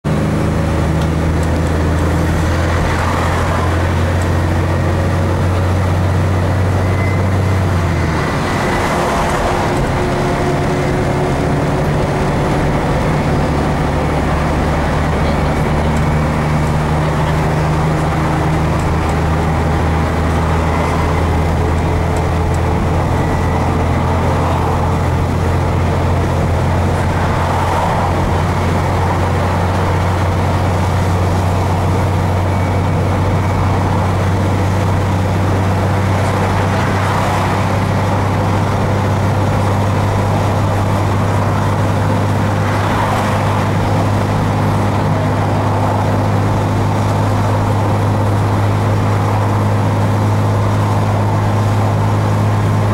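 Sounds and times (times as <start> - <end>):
bus engine droning: 0.0 - 52.9
road noise: 0.0 - 52.9.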